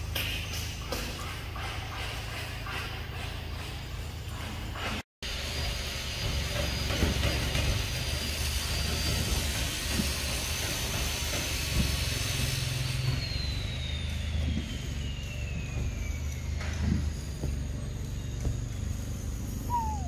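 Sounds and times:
faint high whine falling: 0:12.9 - 0:20.0.

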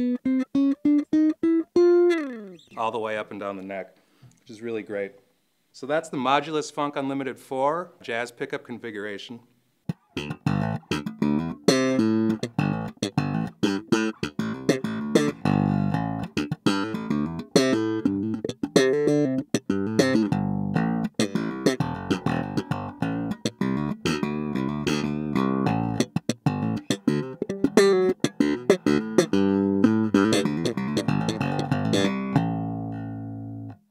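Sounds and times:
electric bass played fingerstyle: 0:00.0 - 0:02.9, 0:09.9 - 0:33.9.

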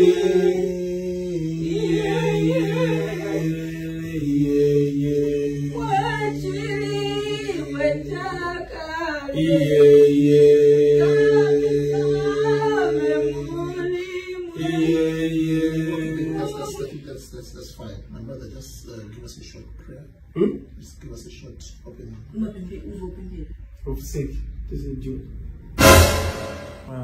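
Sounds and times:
voices singing a capella: 0:00.0 - 0:17.1.

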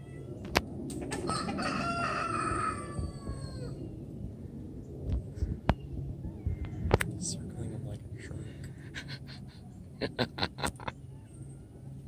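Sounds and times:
rooster crowing: 0:01.1 - 0:03.8.

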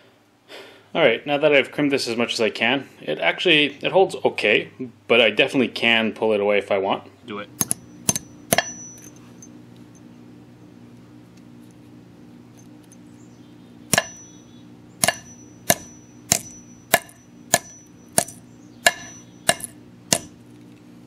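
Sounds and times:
hammer striking metal: 0:07.6 - 0:09.2, 0:13.9 - 0:14.4, 0:15.0 - 0:20.4.

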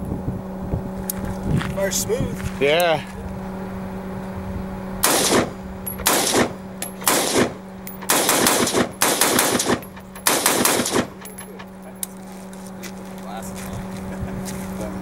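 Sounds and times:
rifle rapid fire bursts: 0:05.0 - 0:11.2.

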